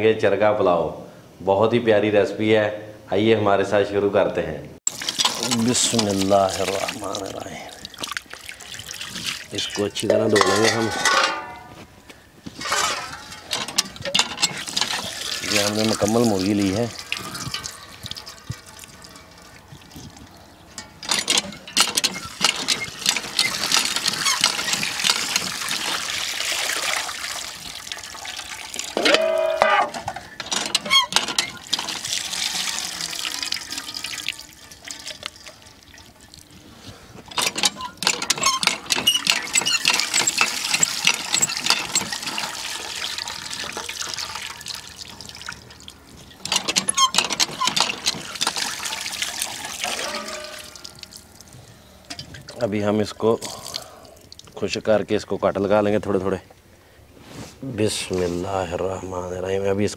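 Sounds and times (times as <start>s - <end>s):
water splashing over chicken: 4.9s - 10.0s, 23.6s - 29.0s
water splashing from tap: 4.9s - 10.7s, 14.5s - 29.0s, 30.8s - 36.5s, 37.3s - 52.6s.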